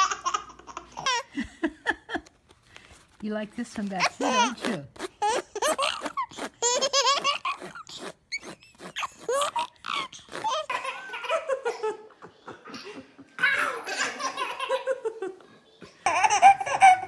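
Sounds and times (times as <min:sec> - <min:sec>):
baby laughing: 0:00.0 - 0:02.2, 0:04.0 - 0:17.0.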